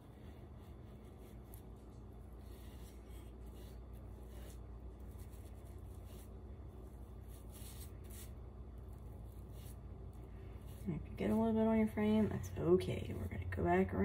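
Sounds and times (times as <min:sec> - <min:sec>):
paintbrush swishing strokes: 0:00.0 - 0:08.4
low steady hum: 0:00.0 - 0:14.0.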